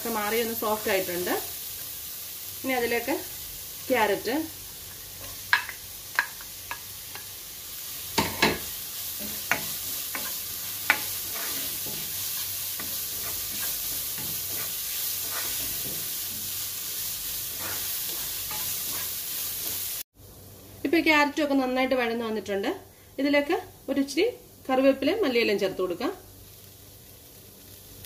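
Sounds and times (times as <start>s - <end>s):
vegetables sizzling in oil: 0.0s - 28.0s
spatula tapping pan: 5.2s - 7.4s, 8.2s - 16.6s.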